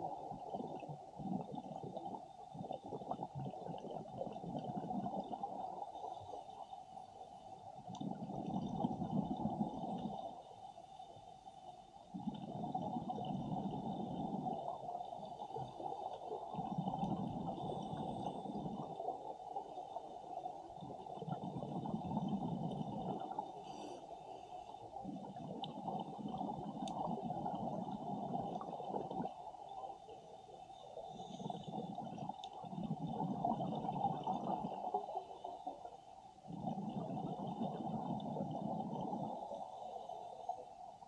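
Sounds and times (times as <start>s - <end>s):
underwater bubbles gurgling: 0.0s - 41.0s.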